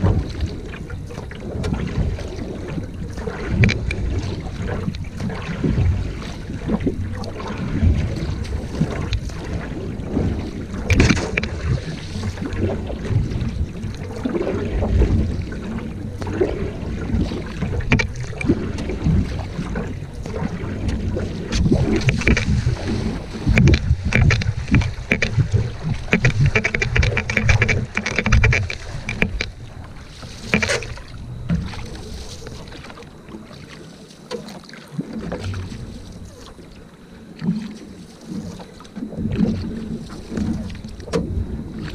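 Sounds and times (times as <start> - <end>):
wind buffeting microphone: 0.0 - 32.6
canoe paddle splashing in water: 0.0 - 41.9.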